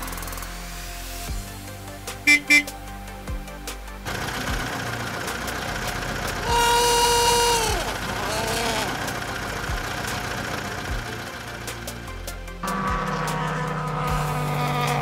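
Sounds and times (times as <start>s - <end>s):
vehicle engine sound effect: 4.0s - 15.0s
held note sliding down in pitch: 6.4s - 9.2s, 12.6s - 15.0s.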